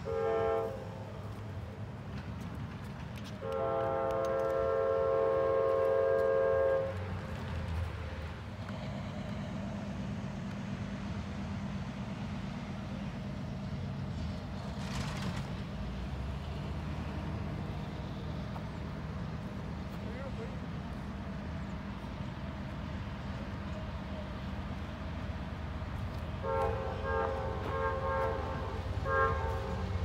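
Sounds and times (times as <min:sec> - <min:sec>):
locomotive air horn chord: 0:00.0 - 0:01.2, 0:03.4 - 0:07.2, 0:26.4 - 0:30.0
train rumbling: 0:00.0 - 0:30.0.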